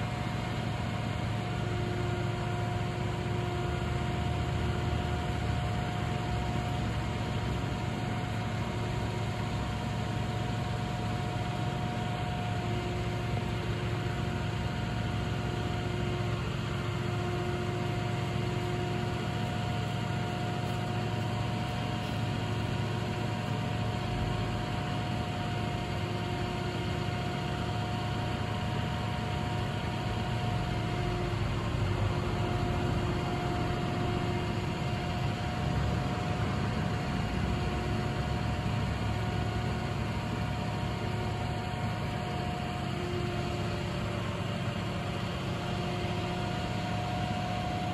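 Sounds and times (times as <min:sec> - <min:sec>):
hydraulic whine: 0:00.0 - 0:47.9
truck engine droning: 0:00.1 - 0:47.9.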